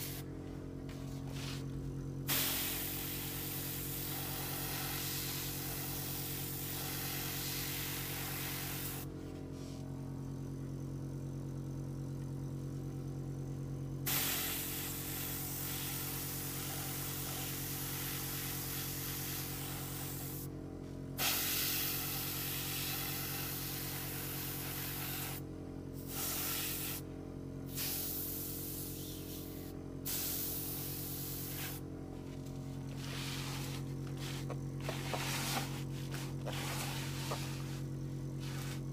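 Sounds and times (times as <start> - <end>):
airbrush spraying hiss: 0.0 - 0.2, 2.3 - 9.8, 14.1 - 20.5, 21.2 - 25.4, 26.0 - 27.0, 27.7 - 31.8, 32.9 - 38.9
steady low hum: 0.0 - 38.9.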